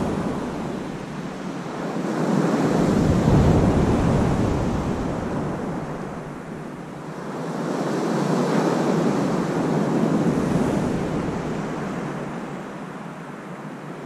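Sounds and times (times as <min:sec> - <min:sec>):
surf breaking on beach: 0:00.0 - 0:12.8.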